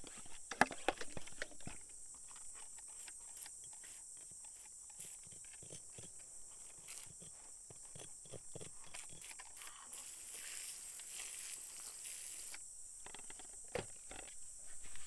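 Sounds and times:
brush scratching stone: 2.6s - 12.6s
spray bottle hissing: 3.4s - 5.3s, 6.7s - 7.3s, 8.9s - 12.6s.

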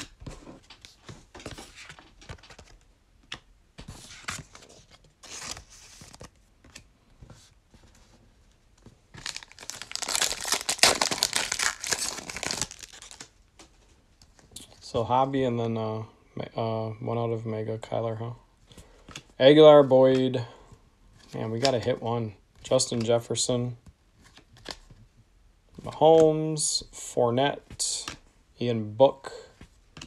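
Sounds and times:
foil wrapper crinkling and tearing: 9.2s - 13.3s.

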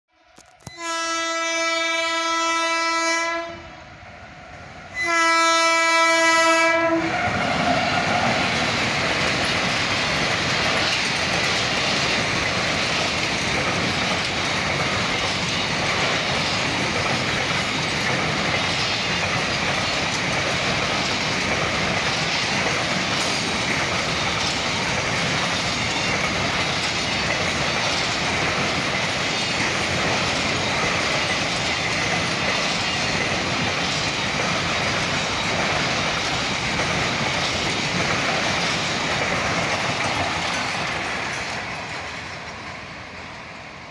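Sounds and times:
locomotive horn blasts: 0.6s - 3.8s, 5.0s - 7.3s
train wheels clattering on rails: 6.3s - 43.4s.

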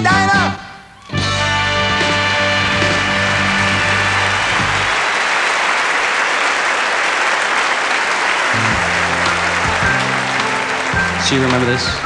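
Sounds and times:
band playing a song: 0.0s - 5.2s, 8.4s - 12.0s
large audience applauding: 2.0s - 12.0s.

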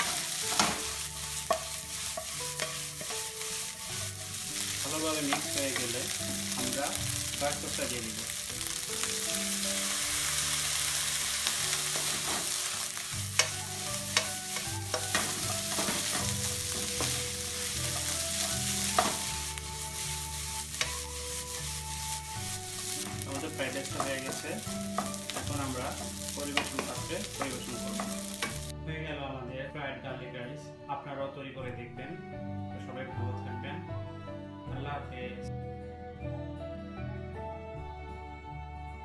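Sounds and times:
rice sizzling in a frying pan: 0.0s - 28.7s.

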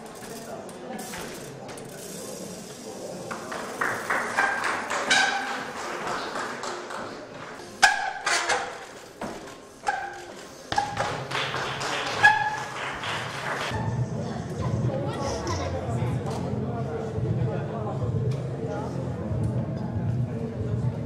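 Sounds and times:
bike wheels thudding on pallets: 7.7s - 11.3s, 12.1s - 12.8s.

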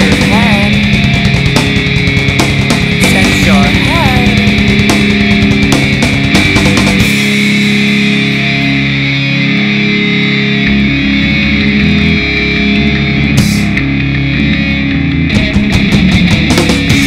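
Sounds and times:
drums hitting: 0.0s - 8.8s, 13.4s - 13.9s, 15.3s - 17.0s
electric guitar chords: 0.0s - 17.0s.

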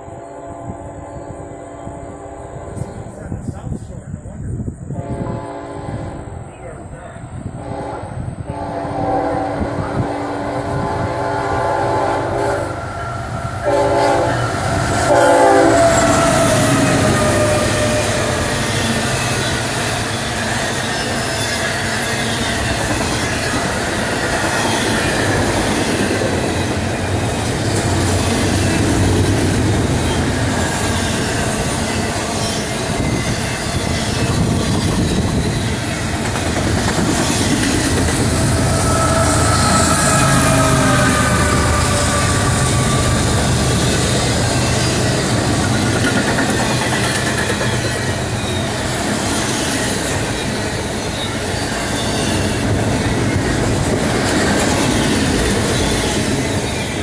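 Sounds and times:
locomotive horn blasts: 0.0s - 3.1s, 5.0s - 6.4s, 7.6s - 12.8s, 13.6s - 18.3s, 38.5s - 44.1s
train wheels rolling on rail: 0.0s - 57.0s
wheels clacking over rail joints: 14.6s - 38.7s, 40.1s - 57.0s
wheel squeal: 38.5s - 45.1s.

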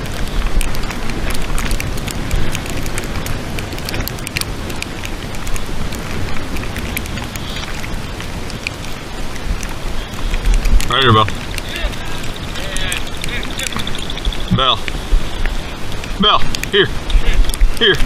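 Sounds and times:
small ticks and crackles: 0.0s - 18.0s
wind buffeting microphone: 0.0s - 18.0s.

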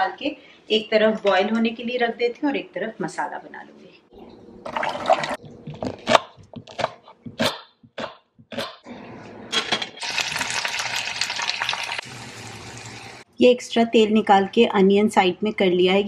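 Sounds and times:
knife chopping on wooden board: 5.5s - 8.8s
onions sizzling in hot oil: 10.0s - 13.2s
tap water running into pot: 10.0s - 13.2s.

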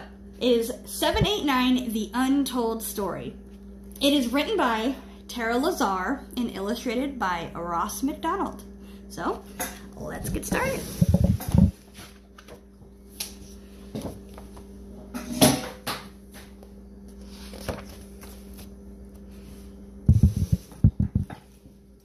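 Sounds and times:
faint steady hum: 0.0s - 22.0s
paper rustle: 17.3s - 18.8s.

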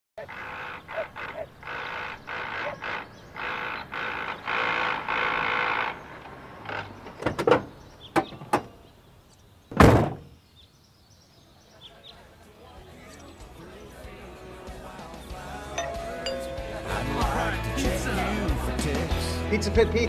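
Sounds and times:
car door slamming: 9.7s - 10.3s.

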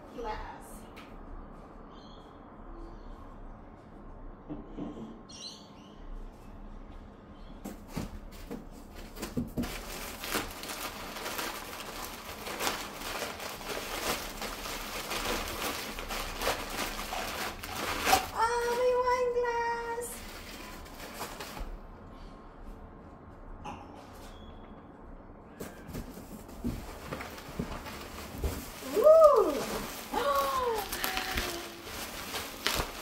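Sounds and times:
packing paper rustling: 8.4s - 21.8s, 25.6s - 33.0s
woman's high-pitched wordless voice: 18.3s - 20.3s, 28.9s - 31.9s.

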